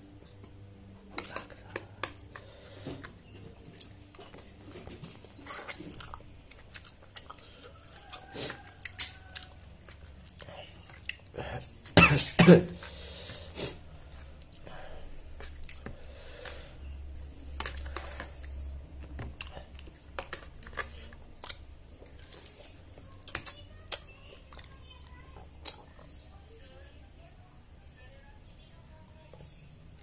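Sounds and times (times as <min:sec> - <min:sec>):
person chewing: 0:00.5 - 0:11.8, 0:12.8 - 0:24.8, 0:25.6 - 0:25.8.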